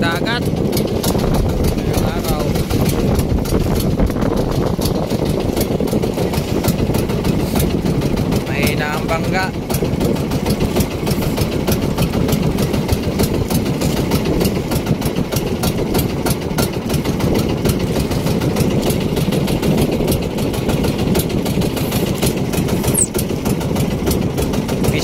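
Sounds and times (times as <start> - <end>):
small boat engine running: 0.0 - 25.0.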